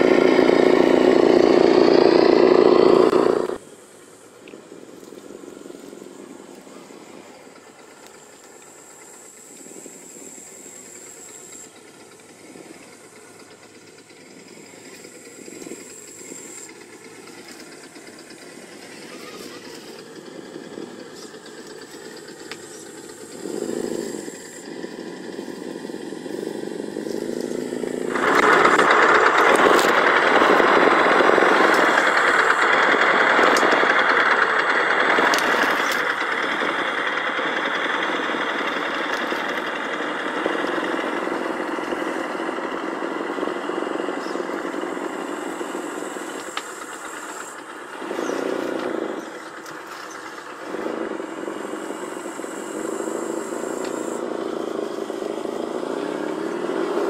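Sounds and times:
simulated engine from small speaker: 0.0 - 57.0.

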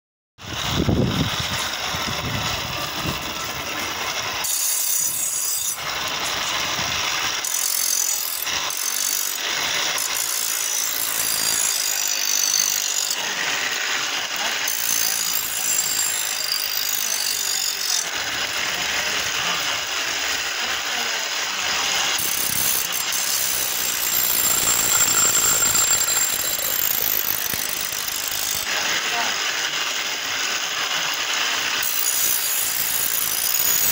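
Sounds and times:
chain and belt drive clatter: 0.6 - 33.9
knife grinding on stone: 4.4 - 6.6, 7.2 - 18.1, 21.8 - 29.3, 31.0 - 33.9.

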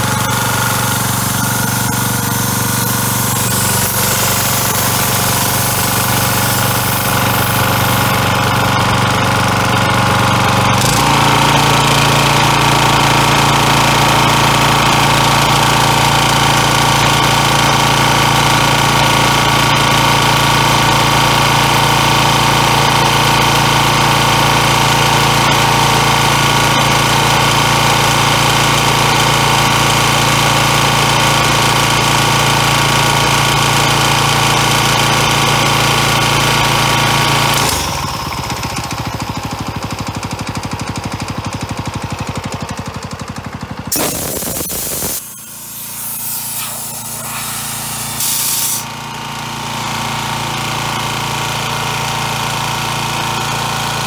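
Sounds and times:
engine compressor running: 0.0 - 54.0
short loud air hisses: 1.0 - 8.2, 43.9 - 48.9.

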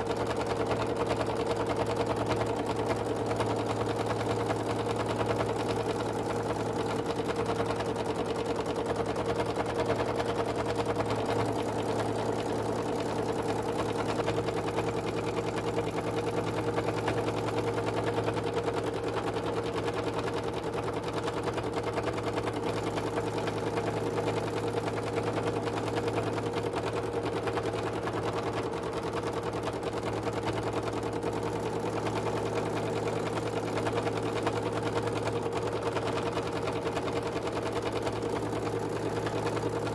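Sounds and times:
sewing machine running: 0.0 - 39.9.

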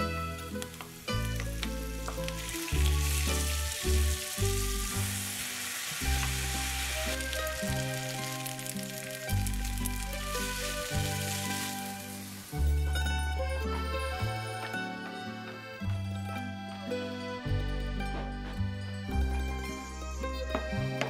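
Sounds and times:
background music with bass: 0.0 - 5.4, 6.0 - 21.0
food sizzling in a pan: 0.0 - 13.4.

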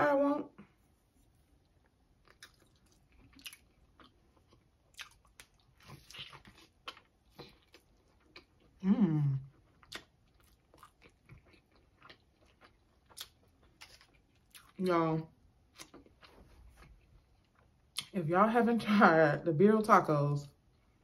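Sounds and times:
crunching while chewing: 1.7 - 8.8, 9.4 - 14.8
person humming with enjoyment: 8.8 - 9.4.

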